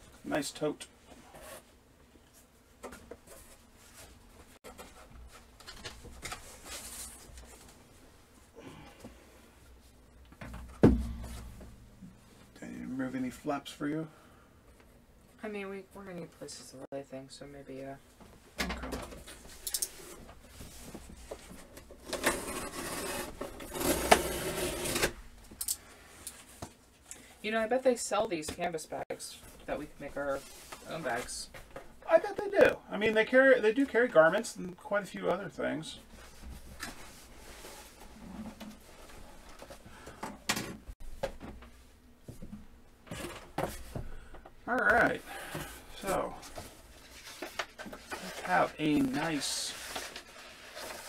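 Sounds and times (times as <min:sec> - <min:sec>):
cardboard box rasping and rustling: 0:22.1 - 0:25.1.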